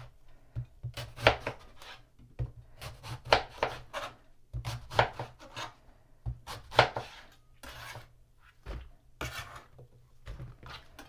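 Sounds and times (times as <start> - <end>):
knife scraping: 1.0 - 2.1, 3.0 - 5.8, 6.5 - 8.6, 9.2 - 9.8.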